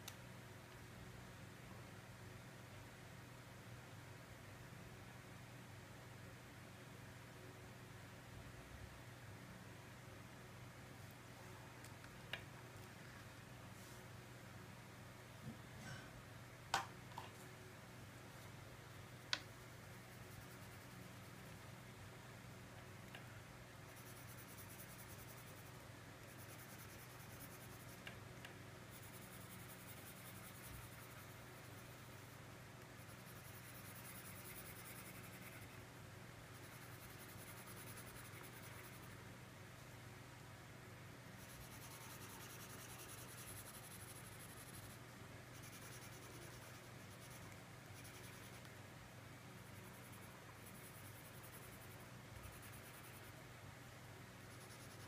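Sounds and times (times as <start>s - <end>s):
low steady hum: 0.0s - 55.0s
crayon scratching on paper: 41.4s - 48.6s, 54.5s - 55.0s.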